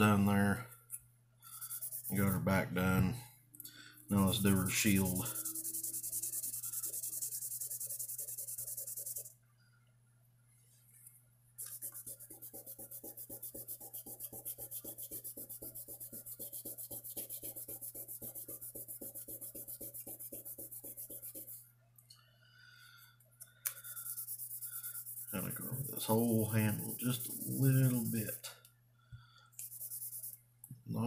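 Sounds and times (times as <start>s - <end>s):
sandpaper scratching on knife: 1.6s - 2.5s, 4.7s - 9.3s, 11.6s - 21.6s, 23.8s - 28.4s, 29.6s - 30.4s.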